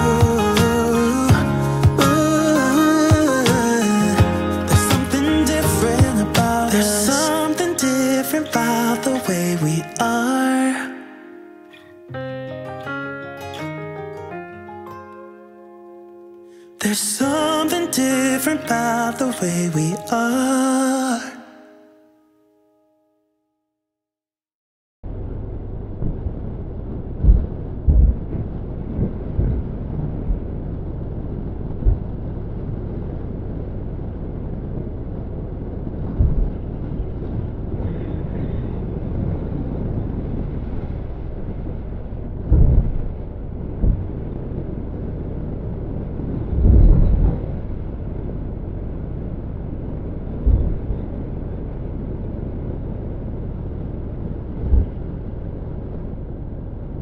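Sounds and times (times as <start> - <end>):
wind buffeting thumps: 0.0 - 7.2, 25.8 - 57.0
wind rumble on microphone: 25.0 - 57.0.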